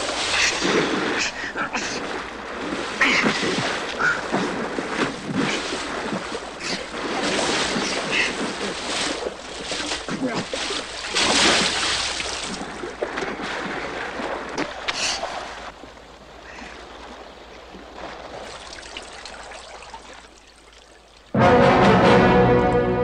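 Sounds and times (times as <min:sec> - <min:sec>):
water splashing and running: 0:00.0 - 0:21.4.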